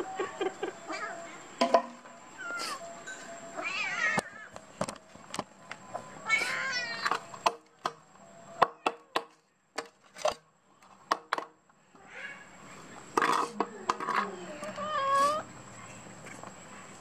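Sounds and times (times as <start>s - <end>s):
cat meowing: 3.6s - 4.5s, 6.2s - 7.2s.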